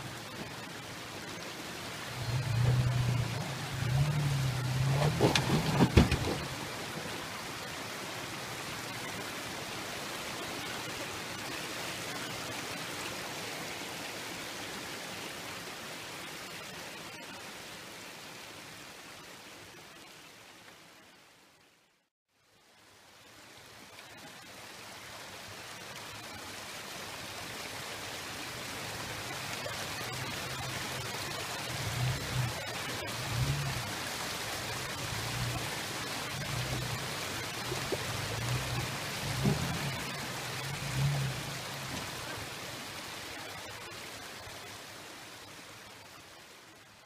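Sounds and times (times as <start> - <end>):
car engine surging: 0.0 - 7.6, 29.9 - 43.5
creek rushing over rocks: 0.0 - 21.7, 22.8 - 47.0.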